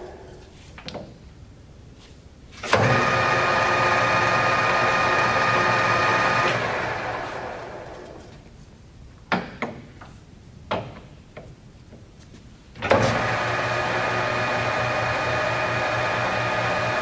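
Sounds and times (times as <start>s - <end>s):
lathe running with whine: 2.8s - 8.2s, 13.0s - 17.0s.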